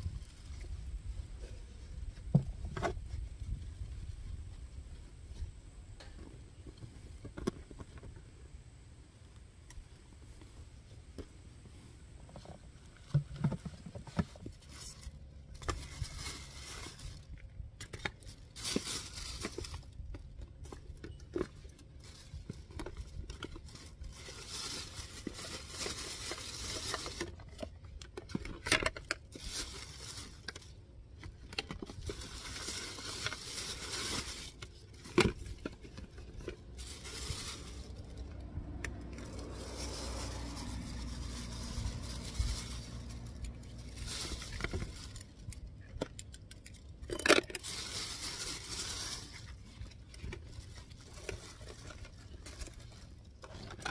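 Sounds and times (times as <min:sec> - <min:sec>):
plastic bags rustling: 0:11.7 - 0:53.9.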